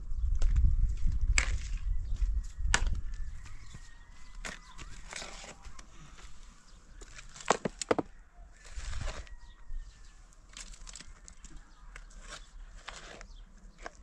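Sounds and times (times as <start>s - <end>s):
shovel scraping earth and stones: 1.3s - 1.9s, 4.2s - 14.0s.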